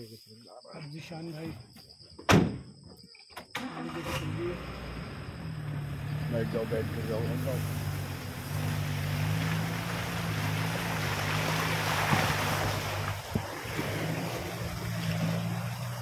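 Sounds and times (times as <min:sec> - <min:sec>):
jeep engine droning: 0:03.6 - 0:16.0
grass swishing against vehicle: 0:05.7 - 0:16.0.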